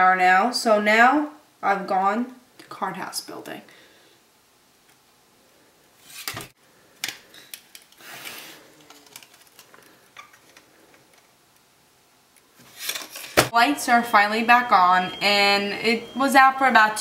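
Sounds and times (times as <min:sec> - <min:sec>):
card rustle: 0:07.4 - 0:11.4.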